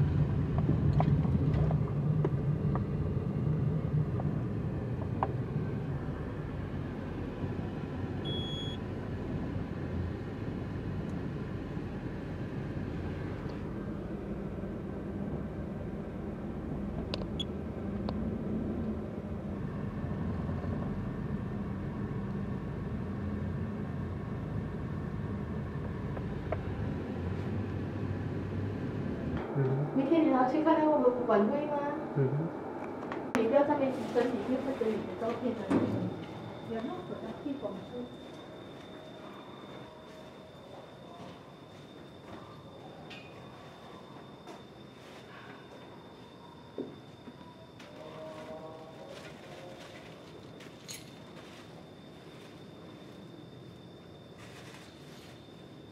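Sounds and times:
car park low rumble: 0.0s - 30.8s
short electronic beep: 8.3s - 8.8s.

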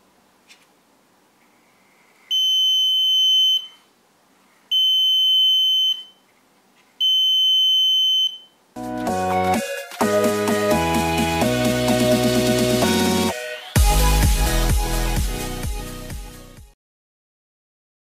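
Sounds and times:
high-pitched alarm buzzer beeps: 2.3s - 3.8s, 4.7s - 6.2s, 7.0s - 8.6s
electronic music: 8.8s - 16.7s.

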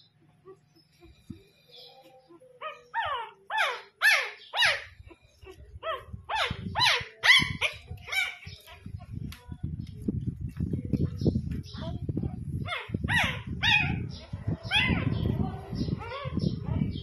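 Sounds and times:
puppy yelping: 2.3s - 8.9s, 12.6s - 14.1s.

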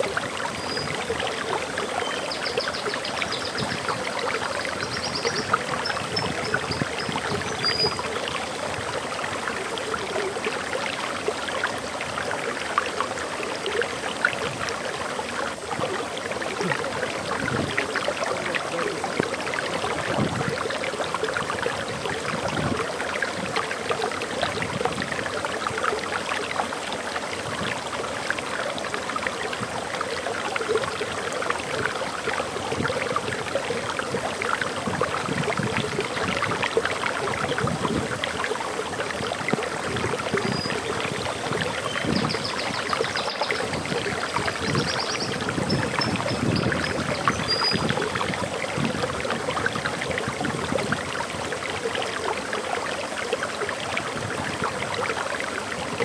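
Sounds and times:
water flowing over waterfall: 0.0s - 56.0s
bird chirping and trilling: 4.7s - 8.2s, 44.6s - 47.9s.

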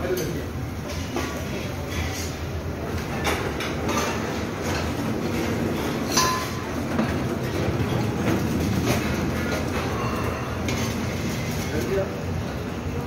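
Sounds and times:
crockery and utensils clinking: 5.8s - 6.7s.

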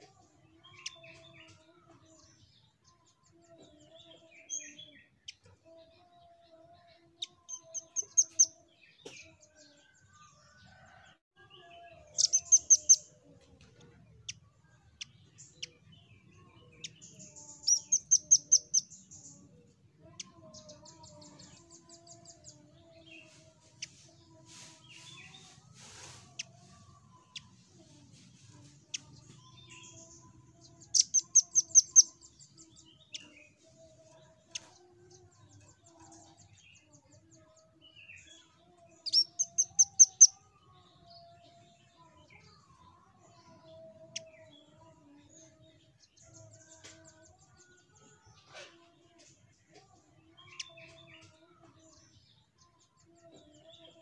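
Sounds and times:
soft bird chirps: 12.1s - 13.1s, 13.7s - 19.3s, 20.1s - 33.6s, 39.0s - 40.4s.

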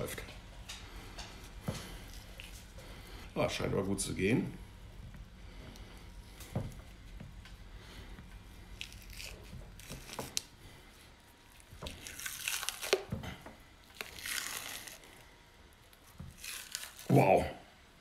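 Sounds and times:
wet tearing and squishing: 8.6s - 10.6s, 11.5s - 15.3s, 15.9s - 17.3s.

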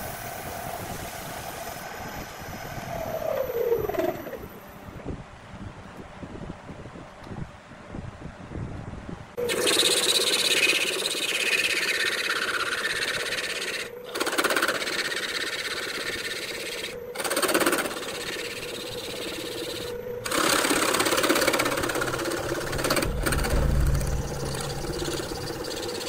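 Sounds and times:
gouge scraping spinning wood: 9.4s - 26.0s
lathe motor hum: 9.4s - 26.0s.

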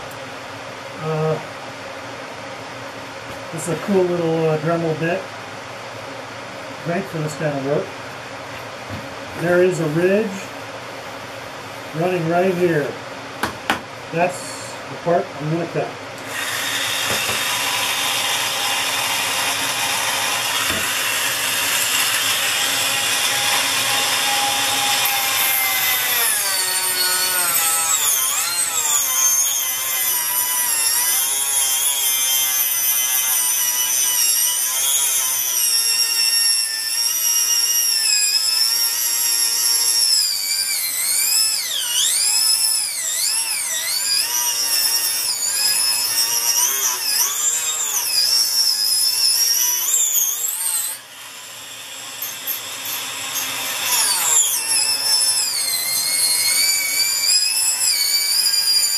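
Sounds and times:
rotary tool cutting tube: 16.2s - 58.9s.

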